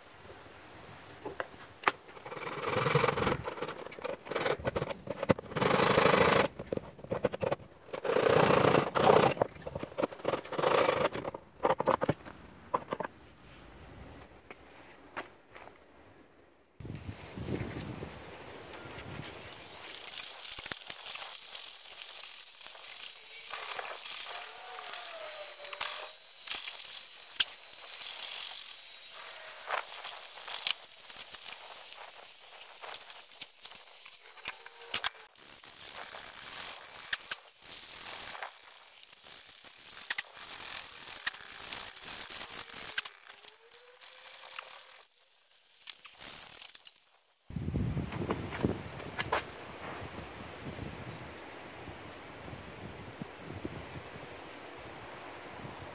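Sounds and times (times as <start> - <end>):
chisel scraping wood: 2.2 - 12.1
saw rasping through wood: 2.3 - 6.7, 7.3 - 11.4, 23.0 - 30.7.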